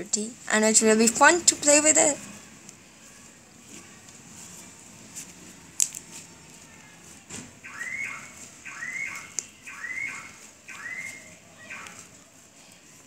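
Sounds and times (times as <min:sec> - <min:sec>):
electronic alarm tone: 0:07.6 - 0:12.0.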